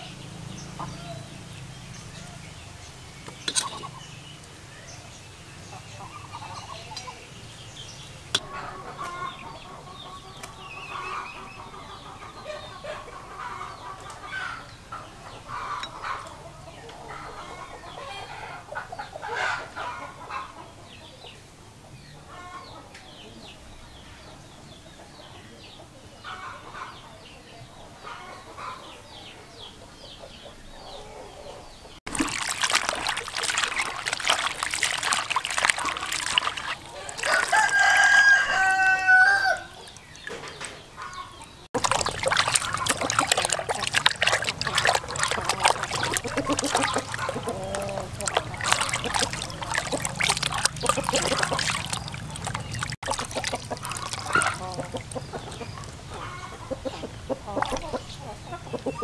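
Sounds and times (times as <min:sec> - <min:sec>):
chickens clucking: 0:02.2 - 0:04.6, 0:08.1 - 0:23.6, 0:24.5 - 0:59.0
hands splashing fish in water: 0:32.1 - 0:56.3, 0:57.3 - 0:58.0
rooster crowing: 0:37.0 - 0:39.8.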